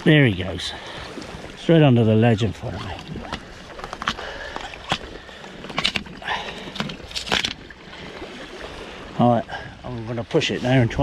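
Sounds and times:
fishing gear knocks and clicks: 2.7 - 7.7.

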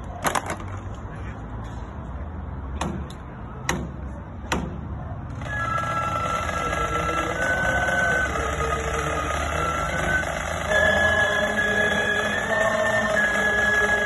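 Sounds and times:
flutes playing a melody: 5.4 - 14.0.

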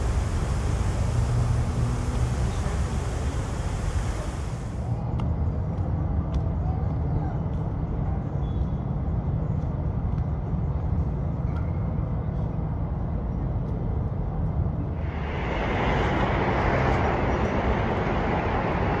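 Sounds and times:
road traffic rumble: 0.0 - 5.8, 14.2 - 19.0.

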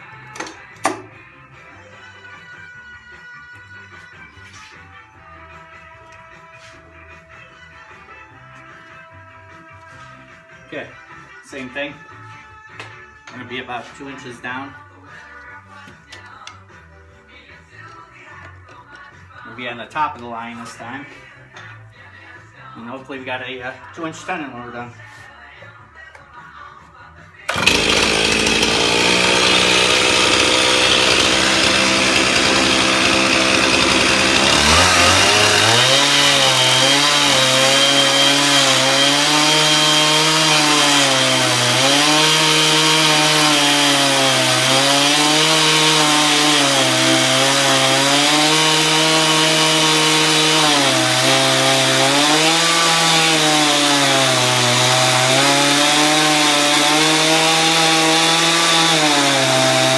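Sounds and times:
chainsaw cutting through wood: 27.5 - 59.9.

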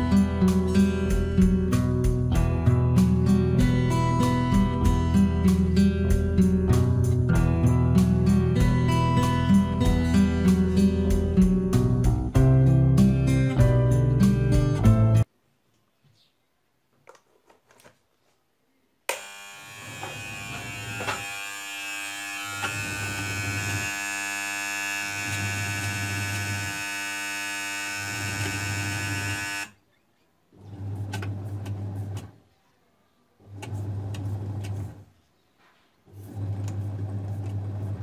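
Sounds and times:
washing machine motor buzzing: 19.1 - 29.8, 33.4 - 35.0, 36.1 - 38.0.

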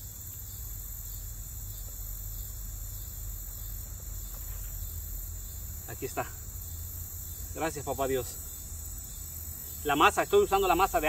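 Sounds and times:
high-pitched insect chorus: 0.0 - 11.0.

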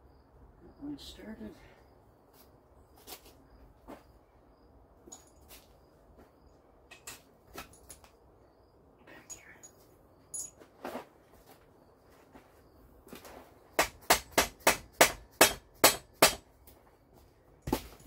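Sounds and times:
hammer striking metal: 13.8 - 16.4.

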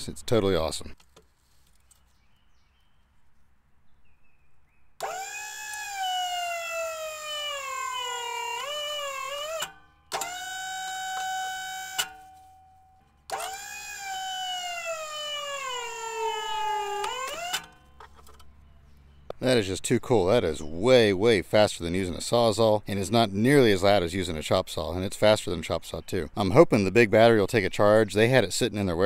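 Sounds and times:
electric cutter motor whining: 5.0 - 12.3, 13.2 - 18.1.

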